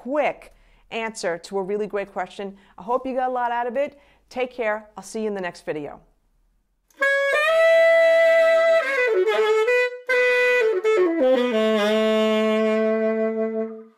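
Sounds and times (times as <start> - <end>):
saxophone playing melody: 6.9 - 13.9.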